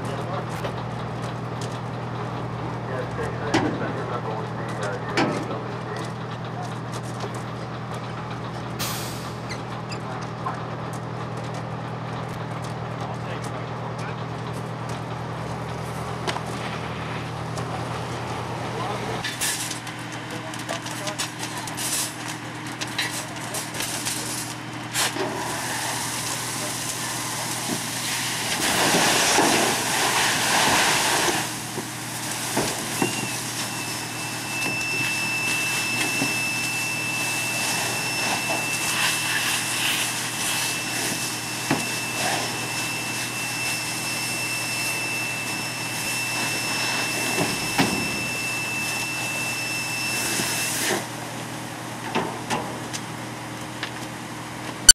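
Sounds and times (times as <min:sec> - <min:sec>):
fire engines running: 0:00.0 - 0:54.9
water and steam hissing: 0:25.3 - 0:51.1
high whistle: 0:33.0 - 0:50.8.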